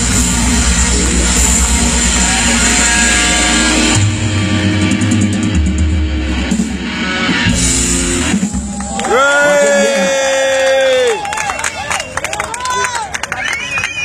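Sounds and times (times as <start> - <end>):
live rock band playing: 0.0 - 10.1.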